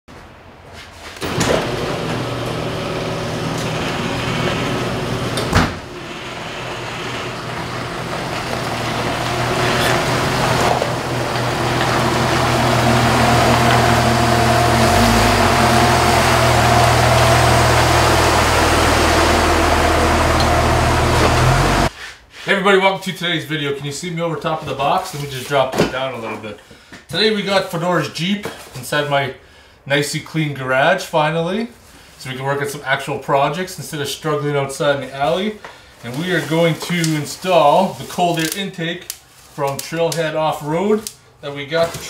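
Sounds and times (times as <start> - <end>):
garage door opener running: 1.2 - 21.9
car engine running: 1.6 - 21.9.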